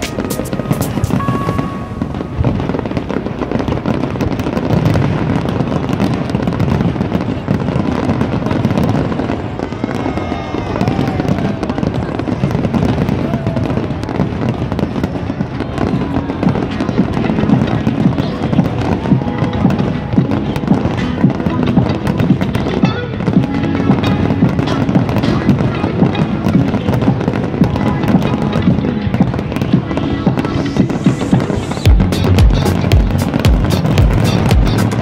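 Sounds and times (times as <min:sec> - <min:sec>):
fireworks shells bursting: 0:00.0 - 0:07.4
rapid crackling: 0:14.0 - 0:35.0.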